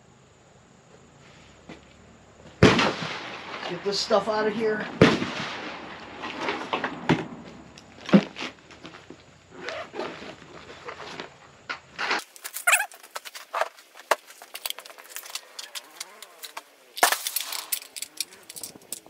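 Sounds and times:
sharp bang: 2.6s - 8.4s.

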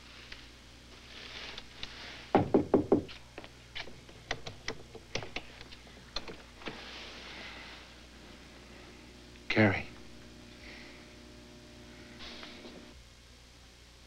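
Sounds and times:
loud knocks on a door: 2.3s - 3.1s.

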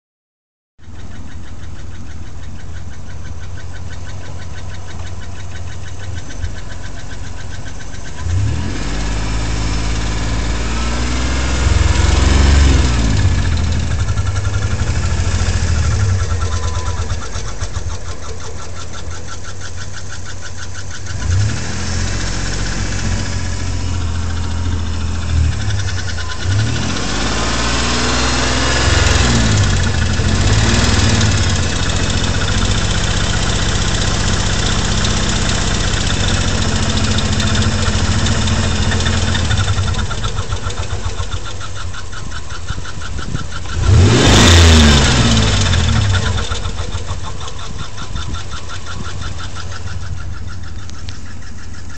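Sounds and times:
fast even ticking: 0.8s - 8.6s, 24.2s - 51.9s
car engine idling and revving: 0.8s - 51.9s.

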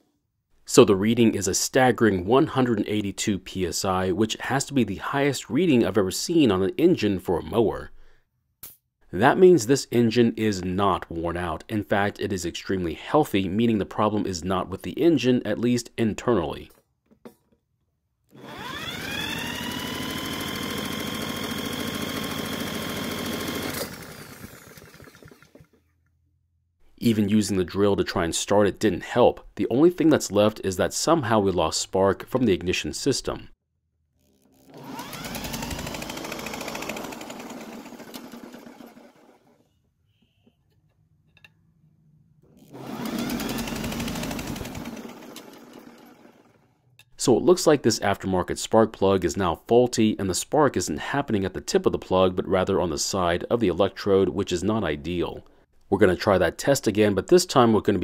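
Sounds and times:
power drill whine: 18.3s - 25.8s, 34.5s - 39.6s, 42.6s - 46.4s
engine chuffing turning over: 18.5s - 25.8s, 34.7s - 39.5s, 42.7s - 46.4s.

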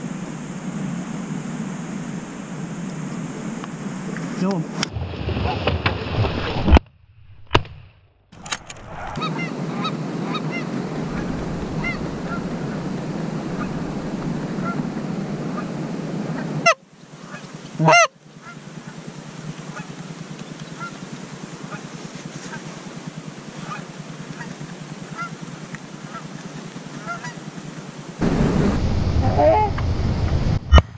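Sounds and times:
geese honking: 9.0s - 18.6s, 20.8s - 21.0s, 23.6s - 25.4s, 26.0s - 27.4s.

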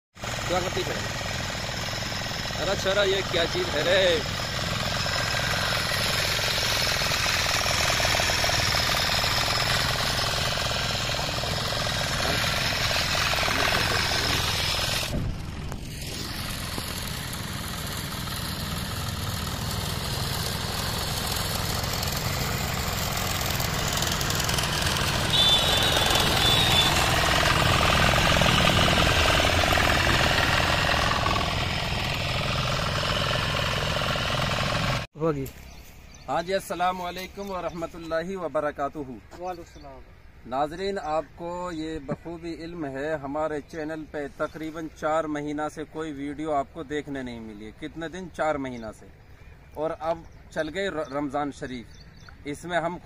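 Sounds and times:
small engine running: 0.2s - 35.1s.

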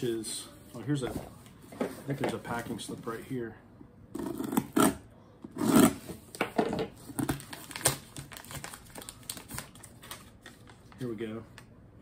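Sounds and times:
paper and cardboard crinkling: 7.0s - 11.1s.

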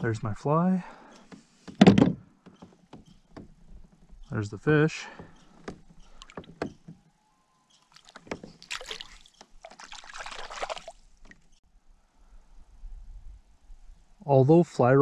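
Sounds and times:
water splashing: 7.9s - 11.4s.

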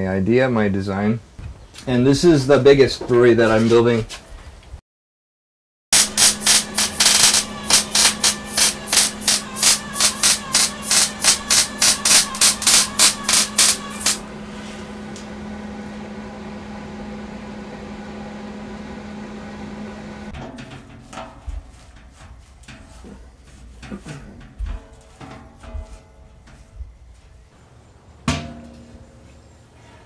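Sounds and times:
welding arc crackling: 6.0s - 14.3s
steady hum: 6.0s - 30.0s.

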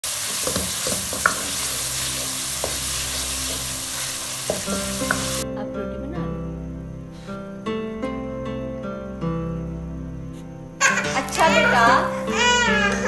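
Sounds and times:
food sizzling in oil: 0.0s - 5.4s
acoustic guitar music: 1.3s - 13.0s.

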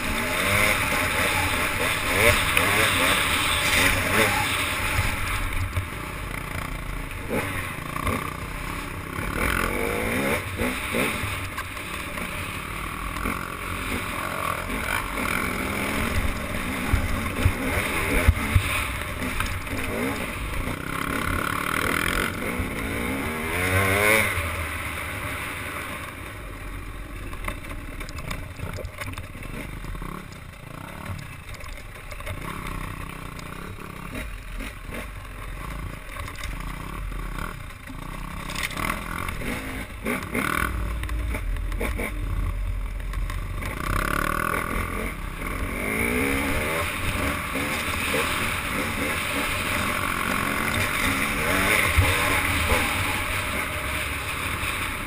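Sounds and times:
wind: 0.0s - 55.0s
water noise: 42.6s - 55.0s.

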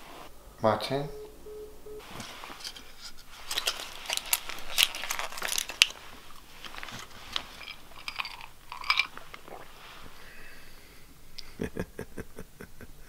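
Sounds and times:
packet crinkling and crackling: 2.5s - 10.1s.

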